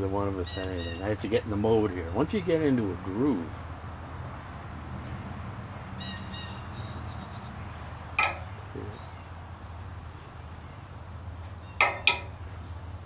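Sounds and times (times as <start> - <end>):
metal ring clinking: 8.2 - 8.6, 11.8 - 12.4.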